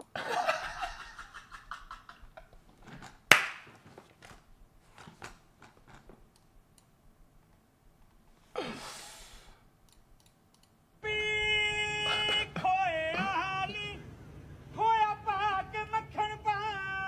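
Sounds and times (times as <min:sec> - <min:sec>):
man laughing breathlessly: 0:00.0 - 0:02.6
breathy exhale: 0:08.4 - 0:09.7.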